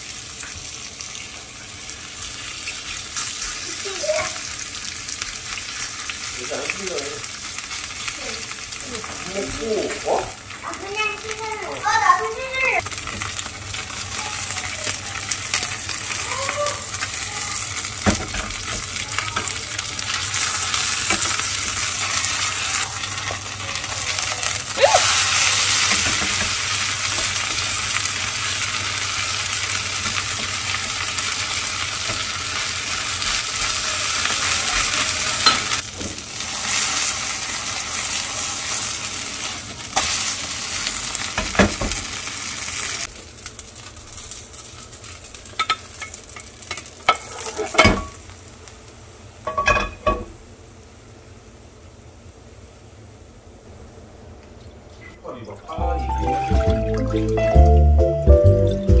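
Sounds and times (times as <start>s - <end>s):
oil sizzling and spitting: 0.0s - 52.9s, 55.5s - 59.0s
spatula knocking and scraping pan: 25.8s - 27.7s.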